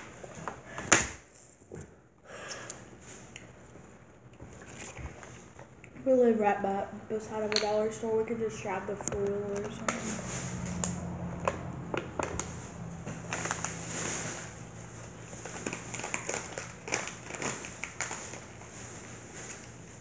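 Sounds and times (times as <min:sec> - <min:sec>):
crinkling handling noise: 0:09.0 - 0:20.0.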